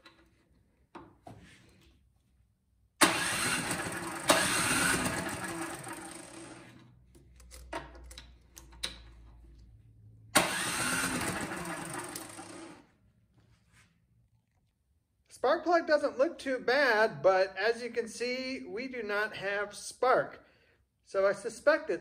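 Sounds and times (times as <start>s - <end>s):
electric starter cranking engine: 3.0s - 6.9s, 10.4s - 12.9s.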